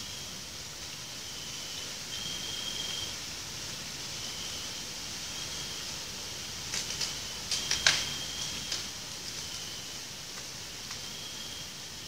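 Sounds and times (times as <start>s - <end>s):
steady high hiss: 0.0s - 12.0s.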